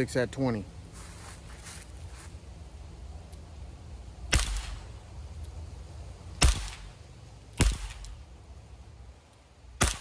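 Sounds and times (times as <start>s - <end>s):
air pistol shots: 4.3s - 4.9s, 6.4s - 7.0s, 7.6s - 8.2s, 9.8s - 10.0s.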